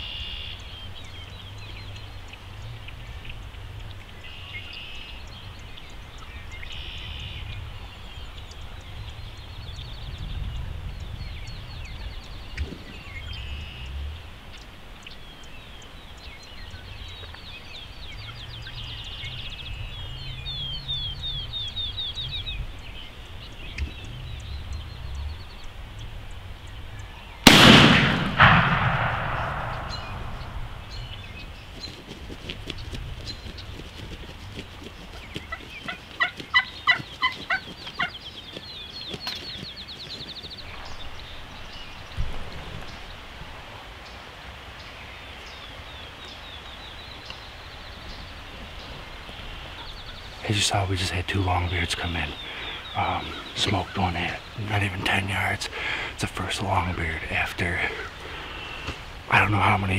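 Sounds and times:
songbirds chirping: 0.0 - 59.9
shotgun blast: 27.4 - 30.9
quieter sharp crack: 27.4 - 31.2
turkeys drumming low: 27.4 - 39.7, 48.4 - 59.9.

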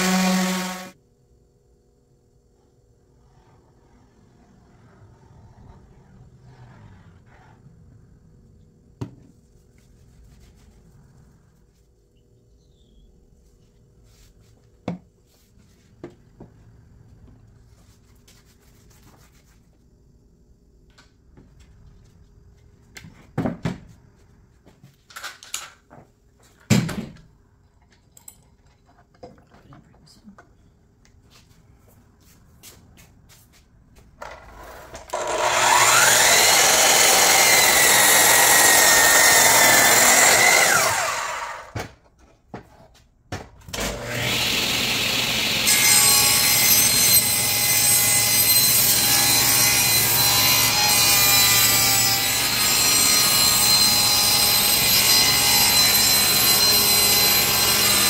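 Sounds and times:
miter saw cutting wood: 0.0 - 1.0, 35.1 - 41.7, 43.8 - 58.0
table saw running: 0.0 - 1.0, 34.7 - 41.7, 43.8 - 58.0.

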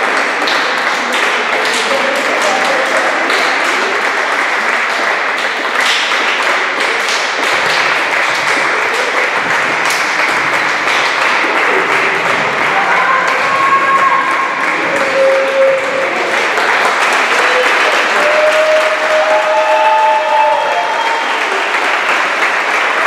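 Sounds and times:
crowd applauding: 0.0 - 23.0
voices: 8.2 - 21.7.

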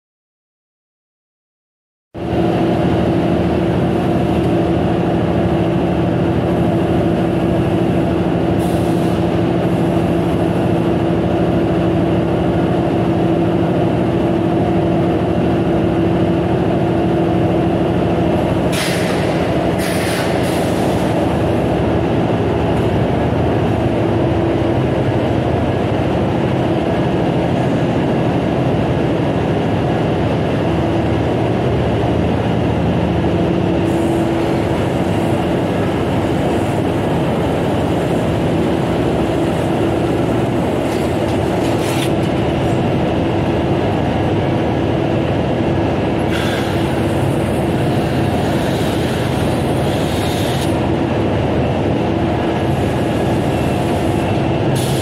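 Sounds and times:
production line machinery din: 2.2 - 55.0
short high hissing: 18.7 - 21.2.

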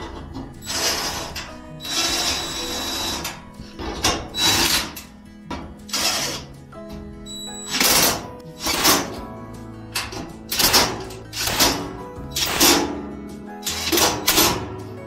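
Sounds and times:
background music: 0.0 - 15.0
power drill tightening screws: 0.6 - 5.1.

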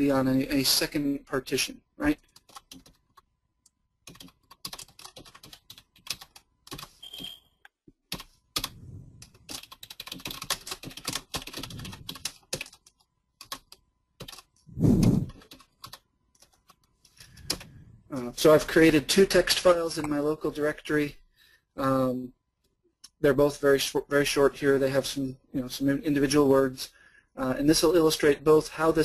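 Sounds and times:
typing on computer keyboard: 2.2 - 3.3, 4.0 - 7.4, 8.1 - 14.6, 15.3 - 17.7.

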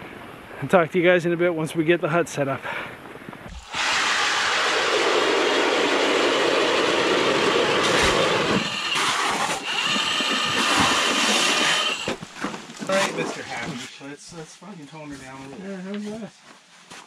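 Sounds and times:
electric ice auger grinding: 3.5 - 12.2.

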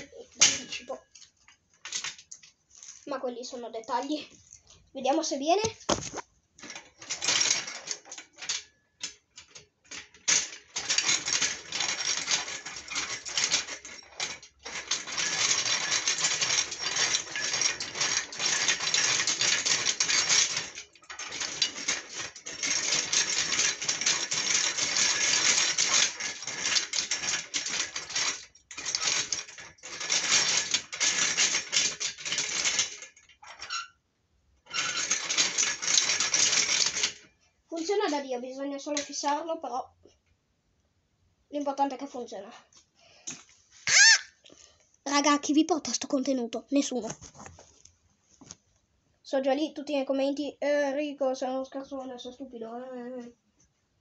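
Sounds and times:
metal mechanism clicking and rattling: 0.0 - 34.0, 34.6 - 38.2, 38.9 - 39.4.

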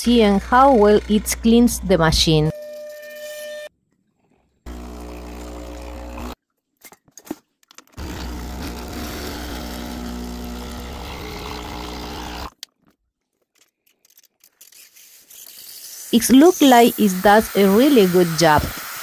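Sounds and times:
espresso machine pump buzzing: 4.7 - 6.4, 8.0 - 12.5, 16.1 - 19.0.

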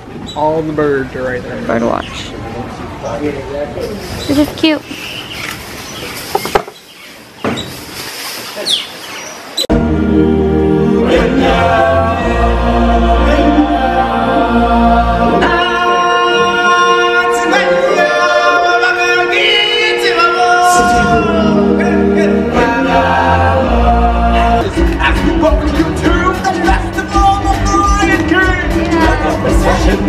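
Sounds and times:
deep bass: 9.7 - 15.7, 20.7 - 30.0
group singing with band: 9.7 - 30.0.

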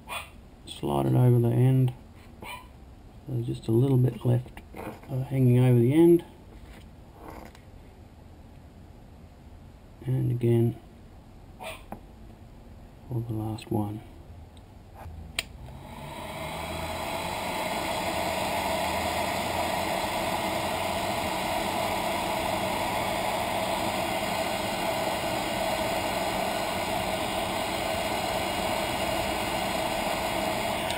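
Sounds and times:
heat gun fan blowing: 15.4 - 30.9.

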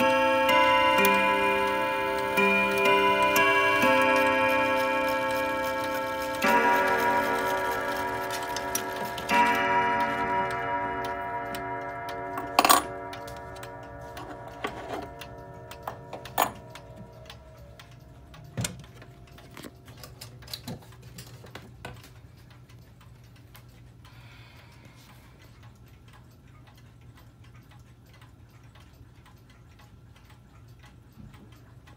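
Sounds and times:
clock chime rods ringing: 0.0 - 20.2
pendulum clock ticking: 0.0 - 31.9.

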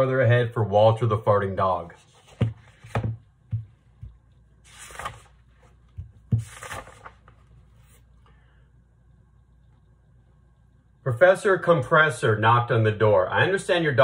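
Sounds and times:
pages rustling: 2.0 - 3.1, 4.0 - 8.1.

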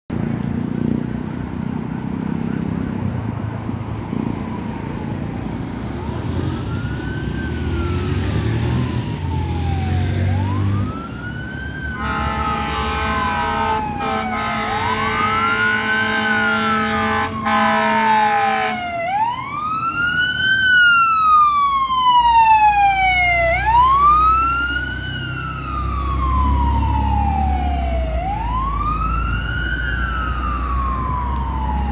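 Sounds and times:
car and motorcycle engines passing: 0.1 - 31.9
fire engine wail siren: 3.4 - 31.9
steady horn note: 12.0 - 18.8.

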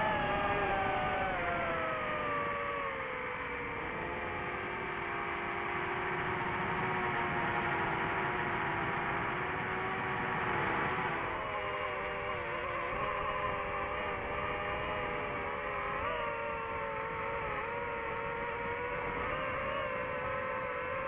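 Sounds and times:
drone propellers whining: 0.0 - 4.5.

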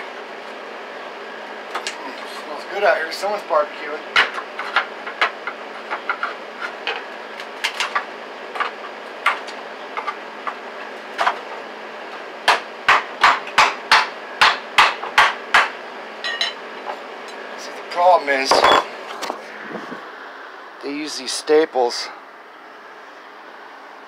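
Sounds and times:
hammer striking wood: 12.4 - 15.8.

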